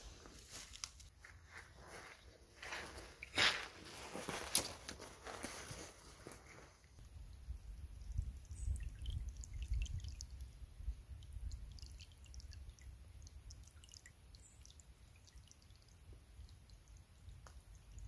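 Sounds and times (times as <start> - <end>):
stream trickling over stones: 3.1 - 5.3, 6.8 - 18.0
water drips and splashes: 7.0 - 18.0.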